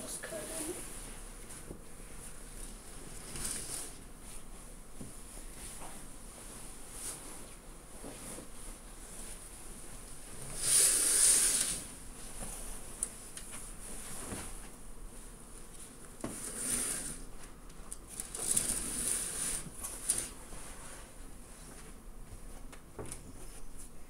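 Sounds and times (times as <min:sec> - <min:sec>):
curtain swishing open: 0:03.0 - 0:04.0, 0:10.4 - 0:12.0, 0:16.3 - 0:17.3, 0:18.2 - 0:21.1.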